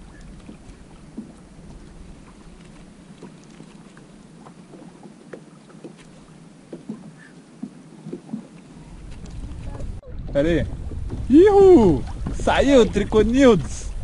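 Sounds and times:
water lapping against hull: 0.0s - 14.0s.

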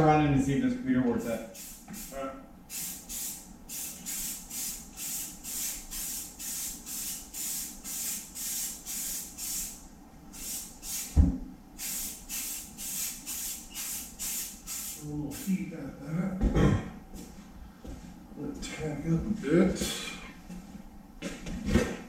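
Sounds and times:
spray paint can hissing: 1.5s - 9.8s, 10.4s - 11.2s, 11.8s - 15.5s.

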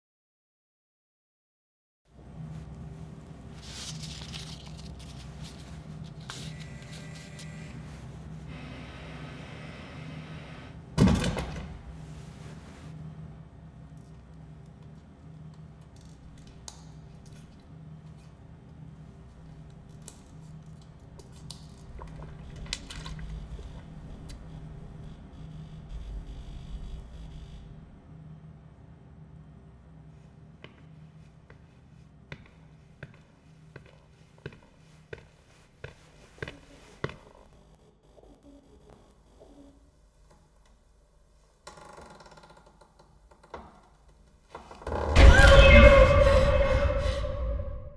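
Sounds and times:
low hum: 2.2s - 28.4s, 36.1s - 39.7s
rustling and crinkling: 2.4s - 8.5s
sharp clicks: 14.0s - 27.6s, 36.2s - 39.7s.

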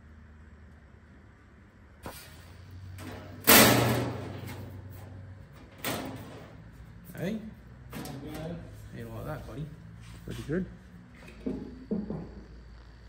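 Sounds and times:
ringing sheet-metal bang: 3.0s - 6.6s.

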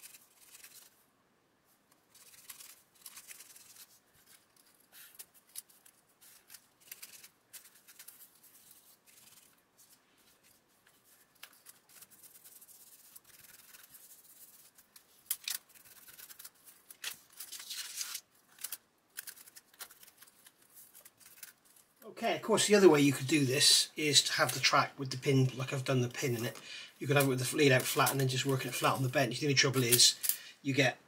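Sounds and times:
fingers rustling on paper: 0.0s - 1.0s, 1.9s - 22.0s.

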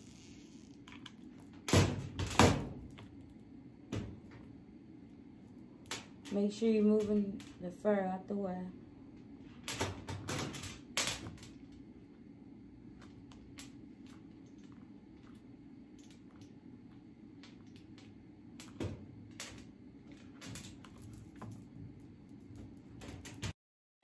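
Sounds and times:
steady low hum: 0.0s - 23.5s.

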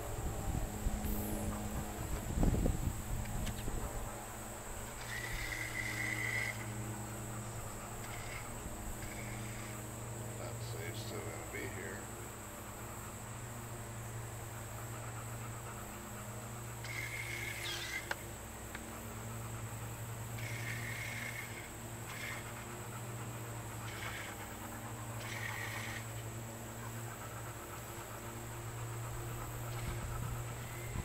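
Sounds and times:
boat motor humming: 0.0s - 31.0s
buzzy high calls: 4.9s - 9.8s, 16.6s - 18.2s.

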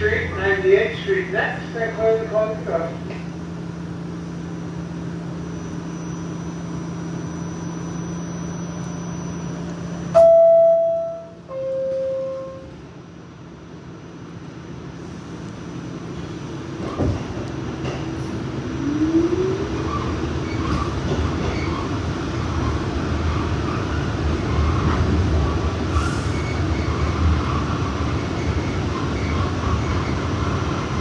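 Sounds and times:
subway car electrical hum: 0.0s - 31.0s
two-tone door chime: 10.1s - 12.7s.

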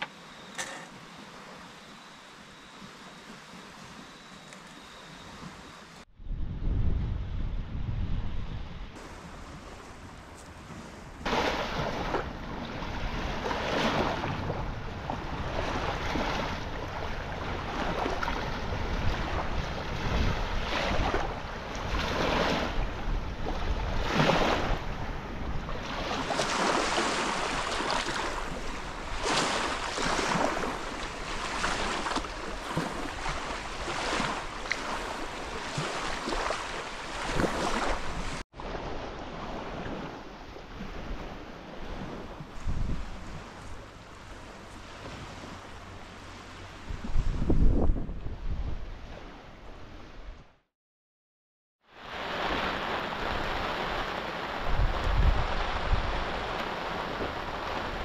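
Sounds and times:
wind rumble on microphone: 2.7s - 50.6s, 52.0s - 58.0s
lake waves lapping on shore: 9.0s - 47.7s, 51.9s - 58.0s.

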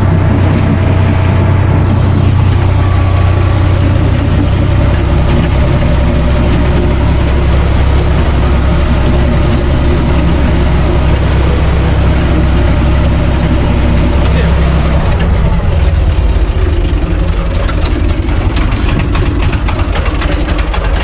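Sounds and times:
tractor diesel engine drone: 0.0s - 21.0s.

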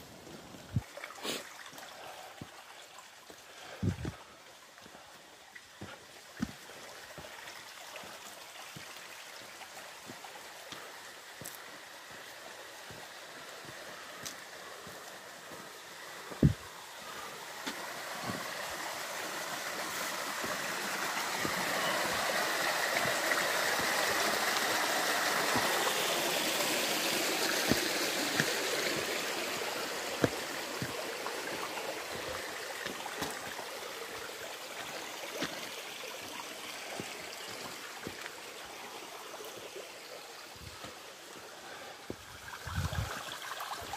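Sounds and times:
stream flowing over rocks: 0.0s - 43.9s.

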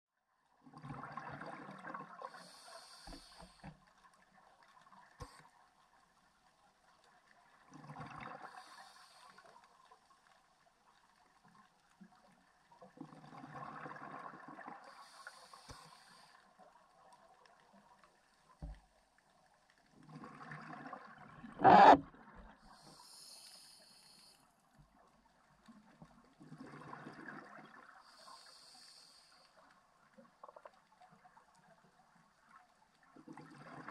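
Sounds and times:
diver breathing through regulator: 2.3s - 3.6s, 21.6s - 22.0s, 22.8s - 24.4s
air bubbling: 21.6s - 22.0s.

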